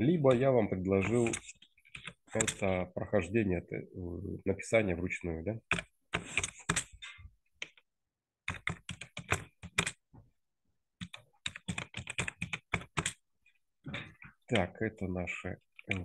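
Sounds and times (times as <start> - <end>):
typing on computer keyboard: 1.0 - 2.7, 5.7 - 7.8, 8.5 - 10.0, 11.0 - 13.2.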